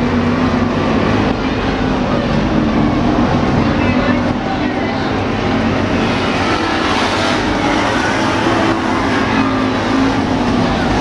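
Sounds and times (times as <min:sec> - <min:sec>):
race car engines droning: 0:00.0 - 0:11.0.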